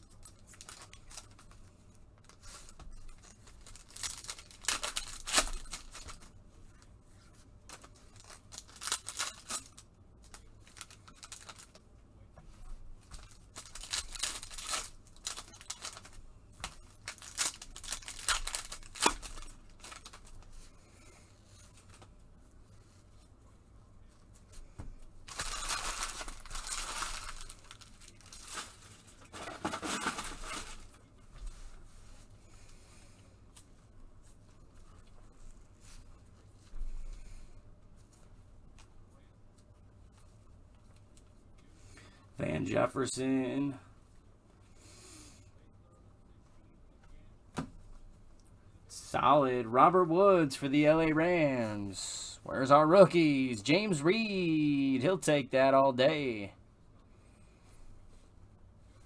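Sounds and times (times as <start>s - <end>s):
wrappers tearing and crinkling: 0.0s - 1.6s, 2.2s - 6.3s, 7.7s - 11.8s, 13.2s - 20.5s, 25.2s - 30.9s.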